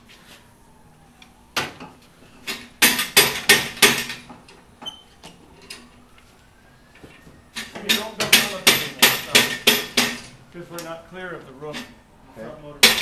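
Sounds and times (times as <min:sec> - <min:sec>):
hammer striking metal: 0:07.9 - 0:10.3.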